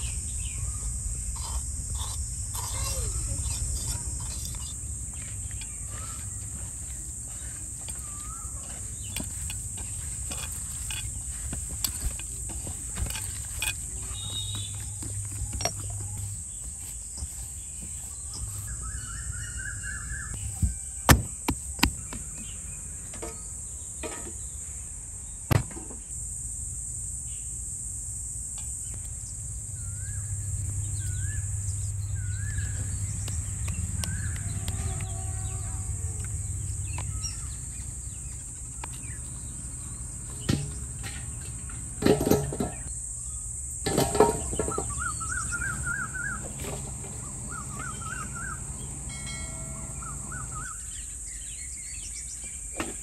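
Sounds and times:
high-pitched insect drone: 0:00.0 - 0:23.8, 0:24.4 - 0:52.5
bird chirping: 0:00.0 - 0:23.9, 0:29.2 - 0:41.5, 0:44.4 - 0:52.7
dry sticks clattering: 0:02.0 - 0:18.7, 0:40.3 - 0:42.9, 0:43.8 - 0:50.6
sharp knocks: 0:20.6 - 0:22.2.

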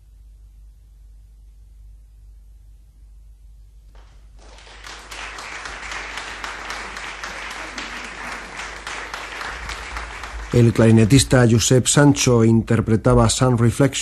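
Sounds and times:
audience applause: 0:04.0 - 0:11.7.

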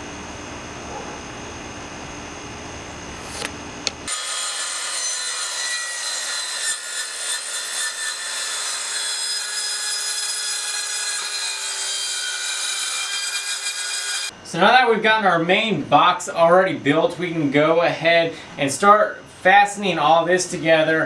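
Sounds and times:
low even hum: 0:00.0 - 0:04.1
circular saw cutting: 0:03.2 - 0:14.3.

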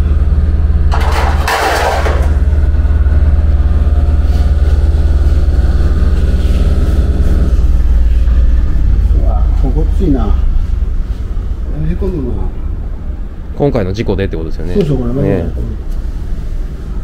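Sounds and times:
low machine hum: 0:00.0 - 0:17.0
sheet metal clattering: 0:00.9 - 0:02.5.

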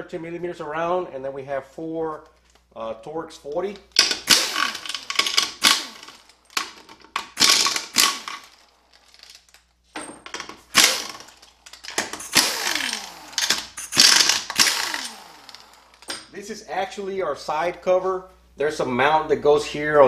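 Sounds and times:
air impact wrench hammering: 0:03.9 - 0:08.6, 0:10.3 - 0:16.3.

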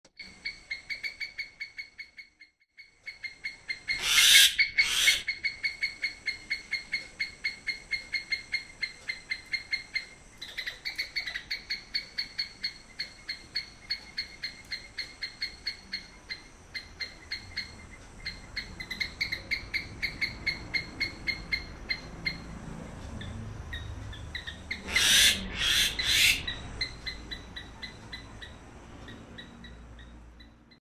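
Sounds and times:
myna calling: 0:03.8 - 0:05.6, 0:23.7 - 0:28.6
harsh squawks: 0:03.9 - 0:05.4, 0:24.6 - 0:28.4.

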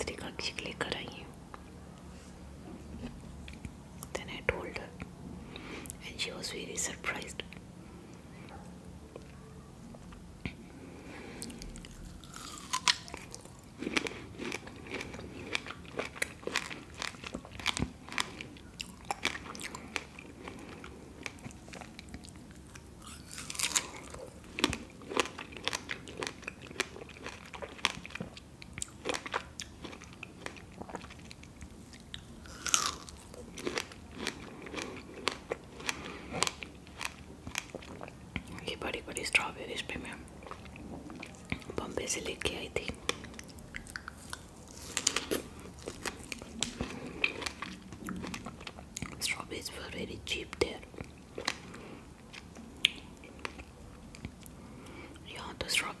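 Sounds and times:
biting and chewing strawberries: 0:11.2 - 0:49.3
wet mouth clicks and smacks: 0:43.2 - 0:44.2.

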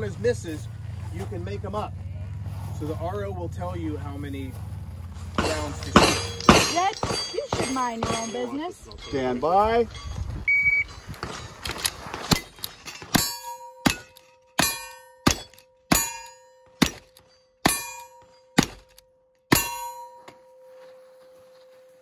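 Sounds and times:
steel targets ringing: 0:05.3 - 0:10.2, 0:12.3 - 0:22.0.

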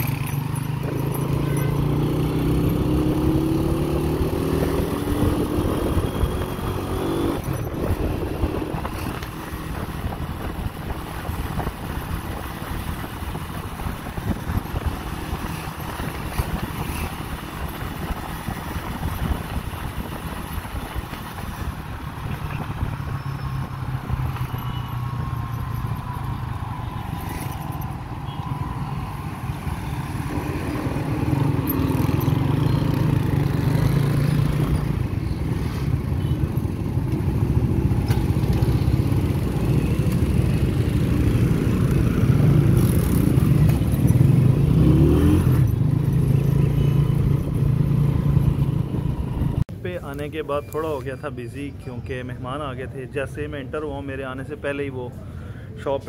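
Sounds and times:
wind rushing over microphone: 0:03.6 - 0:24.5.

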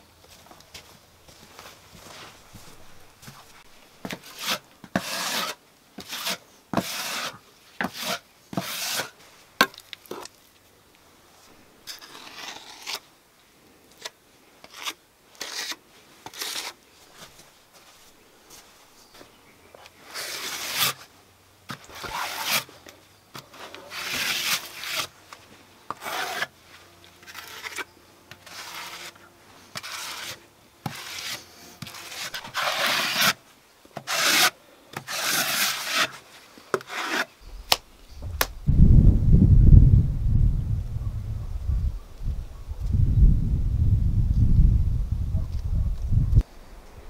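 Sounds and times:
trowel scraping wet plaster: 0:04.1 - 0:09.2, 0:11.8 - 0:13.1, 0:14.0 - 0:16.8, 0:20.1 - 0:21.1, 0:21.7 - 0:22.7, 0:23.4 - 0:25.2, 0:25.9 - 0:26.5, 0:27.2 - 0:29.1, 0:29.7 - 0:33.4, 0:34.0 - 0:37.4
wind rumble on microphone: 0:37.5 - 0:47.0.

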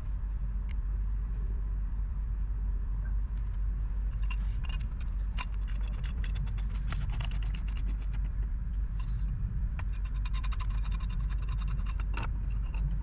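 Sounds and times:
steady low rumble: 0:00.0 - 0:13.0
pipe wrenches clicking on metal: 0:04.2 - 0:08.4, 0:09.8 - 0:13.0.

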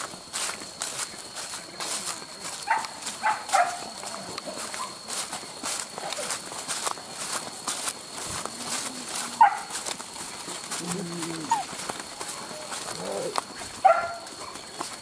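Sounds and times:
soft footfalls on leaves: 0:00.0 - 0:15.0
lower drawn-out calls: 0:10.7 - 0:14.8.

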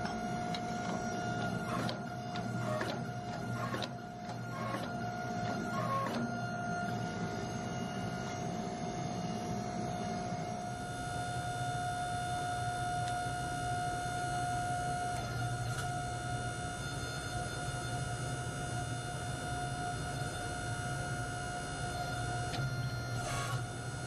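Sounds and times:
pump motor whining: 0:00.0 - 0:16.6, 0:21.5 - 0:24.0.

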